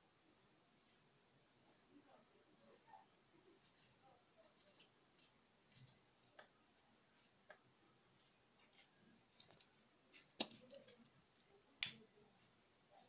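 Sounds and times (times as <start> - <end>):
scissors snipping yarn: 11.8 - 12.1.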